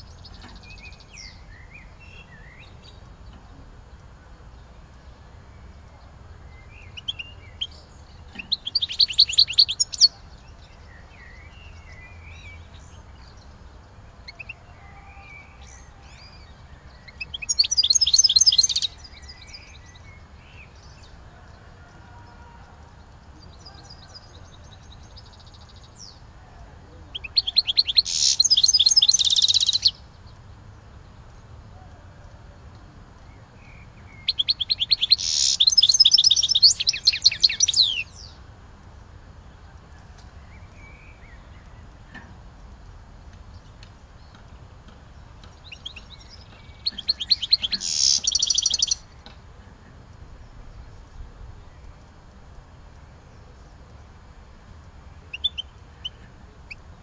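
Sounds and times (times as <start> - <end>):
songbird trilling: 6.6 - 13.6, 14.2 - 21.1, 27.1 - 30.1, 33.3 - 38.4, 45.4 - 49.2, 55.3 - 56.9
faint bird chirps: 14.2 - 30.1, 33.2 - 38.3, 45.6 - 49.8, 55.2 - 56.9.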